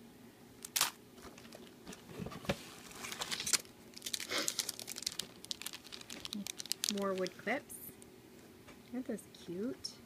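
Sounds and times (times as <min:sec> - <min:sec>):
packaging crinkling and rustling: 0:00.6 - 0:08.0.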